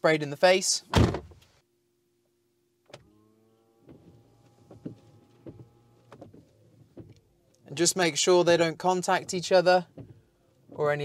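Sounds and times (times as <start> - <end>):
electric pump whine: 2.9 - 6.9.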